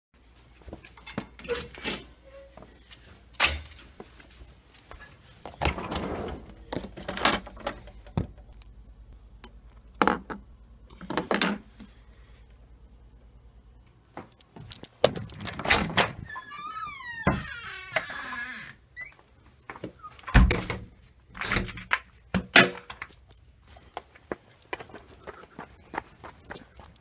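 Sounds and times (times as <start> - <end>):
freezer drawer sliding out: 5.6 - 7.6.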